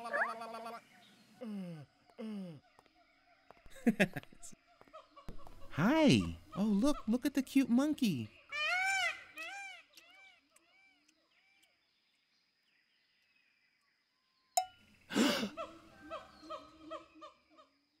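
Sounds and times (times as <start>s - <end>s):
cartoon monkey hooting: 0.0s - 0.8s.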